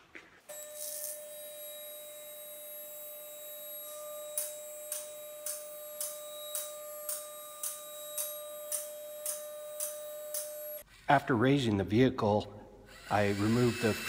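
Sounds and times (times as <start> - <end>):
hydraulic pump whining: 12.9 - 14.0.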